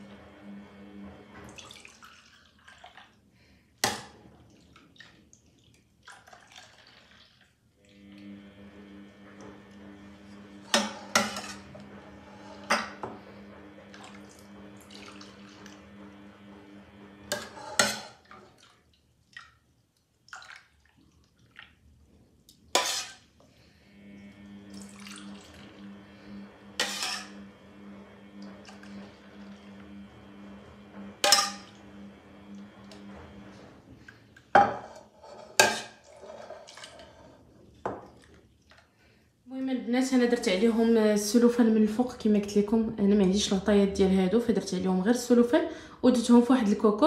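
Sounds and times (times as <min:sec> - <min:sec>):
liquid splashing: 0:01.5 - 0:03.2, 0:04.3 - 0:07.6, 0:18.2 - 0:23.2.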